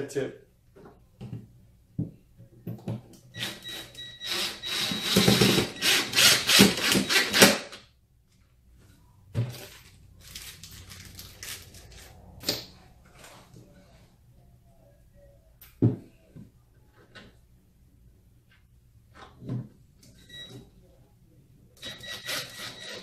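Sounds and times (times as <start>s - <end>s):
impact driver whining and hammering: 3.4s - 7.8s, 21.8s - 23.0s.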